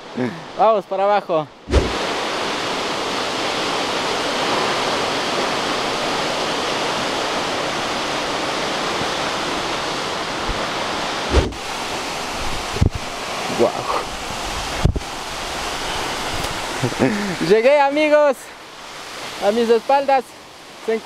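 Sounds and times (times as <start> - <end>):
waterfall rushing: 0.0 - 21.0
low thump: 1.7 - 2.0, 11.3 - 11.6.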